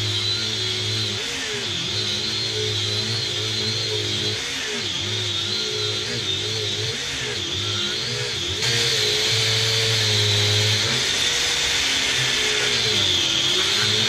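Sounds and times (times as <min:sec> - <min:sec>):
angle grinder cutting: 0:00.0 - 0:14.0.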